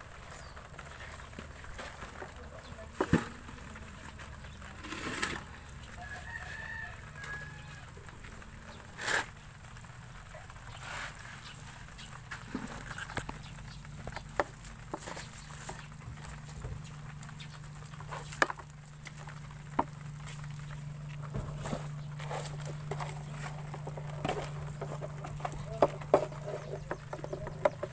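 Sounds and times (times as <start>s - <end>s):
shrimp rustling in plastic basin: 0.0s - 27.9s
rooster crowing: 5.8s - 8.1s.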